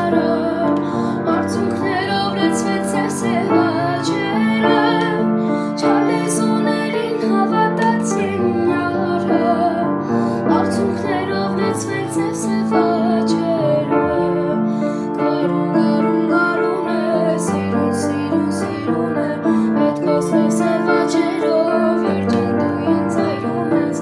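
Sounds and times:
upright piano chords: 0.0 - 24.0
boy singing: 1.3 - 9.9, 10.5 - 19.4, 20.0 - 24.0.

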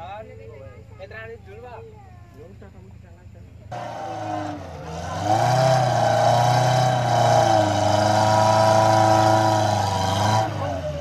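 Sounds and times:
engine revving hard: 3.7 - 11.0.

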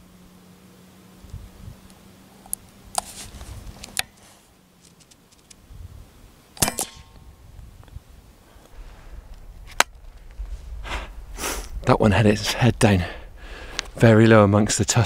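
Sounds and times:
faint low hum: 0.0 - 15.0
air rifle shot crack: 6.6 - 7.2.

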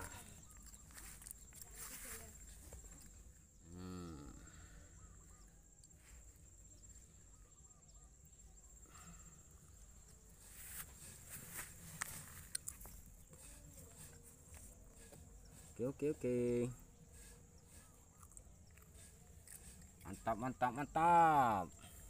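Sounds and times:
drawn-out animal call: 11.8 - 22.0.

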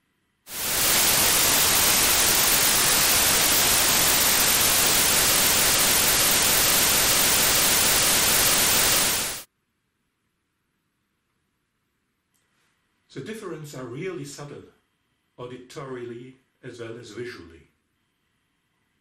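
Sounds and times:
loud steady white noise hiss: 0.4 - 9.5.

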